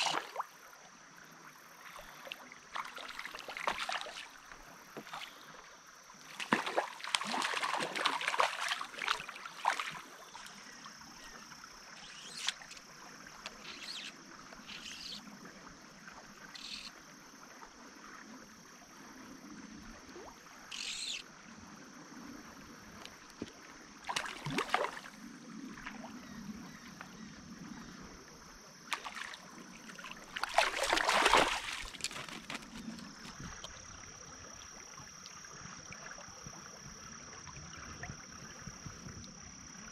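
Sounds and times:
water splashing in a stream: 0.0s - 0.8s, 1.6s - 16.4s, 22.5s - 26.8s, 28.8s - 38.2s
fish thrashing in water: 6.4s - 10.0s, 28.9s - 33.7s.

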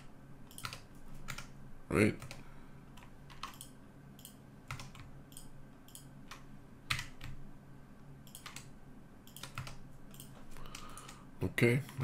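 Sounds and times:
keyboard keys clicking: 0.0s - 1.5s, 3.0s - 7.4s, 8.3s - 8.7s, 9.3s - 11.2s
faint low hum: 0.0s - 12.0s.

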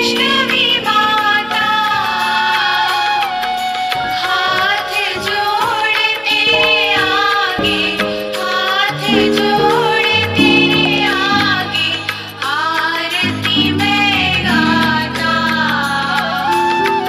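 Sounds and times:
devotional song singing: 0.0s - 17.0s.

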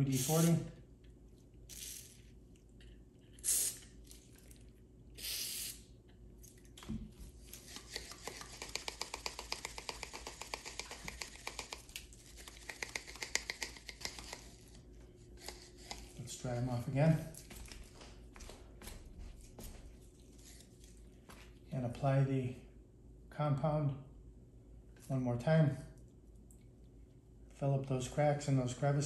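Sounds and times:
aerosol spray hisses: 0.0s - 0.6s, 3.4s - 3.8s, 5.2s - 5.8s.

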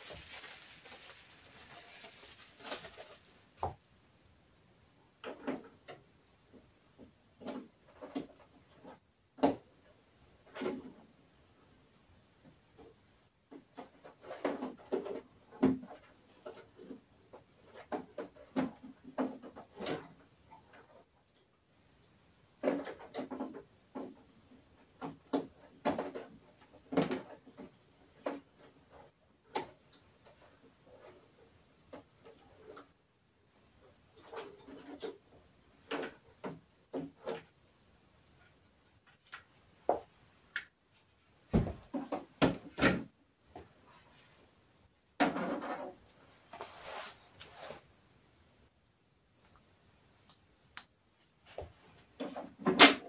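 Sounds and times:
scraping rustle: 0.0s - 3.5s, 45.4s - 47.9s
objects knocking and clunking: 5.2s - 11.2s, 12.4s - 21.4s, 22.6s - 33.0s, 34.0s - 37.6s, 41.5s - 44.0s, 45.1s - 46.1s
objects knocking and clattering: 41.5s - 43.8s.

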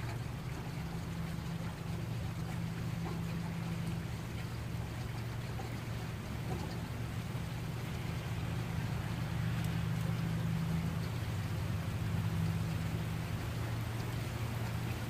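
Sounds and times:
heavy rain falling: 7.0s - 15.0s.

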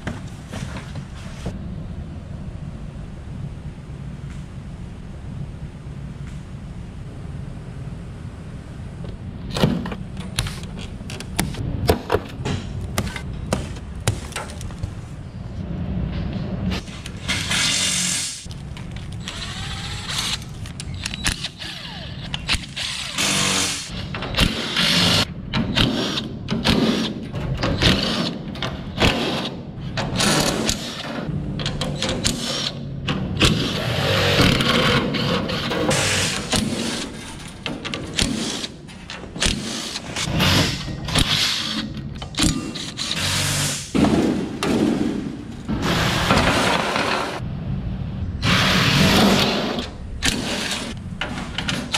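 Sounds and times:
cordless drill whirring: 19.2s - 20.6s.

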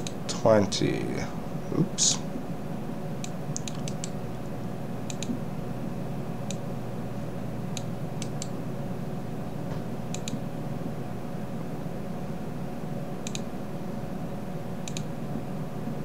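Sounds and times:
computer mouse clicks: 0.0s - 0.2s, 3.2s - 4.2s, 5.1s - 5.4s, 7.7s - 8.5s, 10.1s - 10.4s, 13.2s - 13.5s, 14.8s - 15.1s
low electrical hum: 0.0s - 16.0s.

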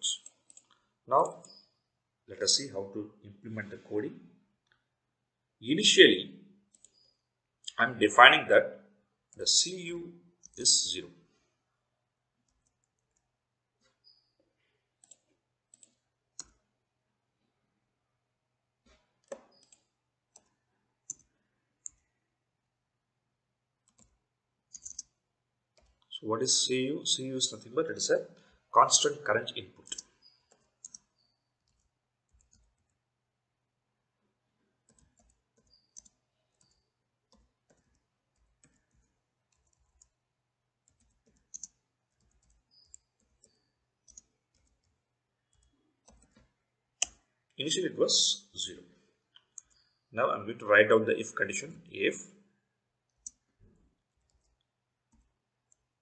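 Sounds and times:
faint keyboard keystrokes: 12.5s - 16.6s, 18.8s - 22.1s, 23.8s - 25.2s, 29.7s - 33.0s, 34.8s - 40.2s, 40.8s - 47.3s, 53.1s - 55.9s.

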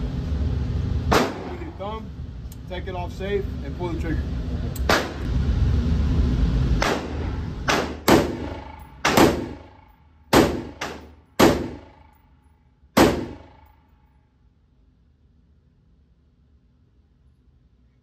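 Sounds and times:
rifle shots echoing indoors: 1.1s - 1.6s, 6.8s - 12.3s, 13.0s - 14.1s.

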